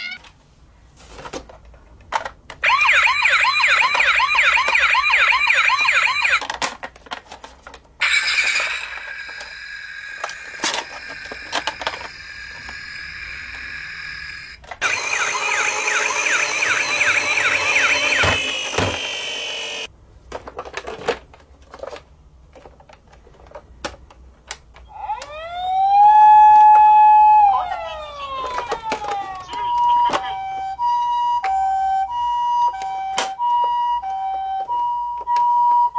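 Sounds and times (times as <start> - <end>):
plastic toys clicking and knocking: 1.2 - 2.7, 3.5 - 12.8, 20.3 - 25.3, 27.7 - 30.4
toy siren wailing: 2.6 - 6.4, 8.0 - 19.9, 24.9 - 35.9
toy wheels whirring: 8.0 - 19.9.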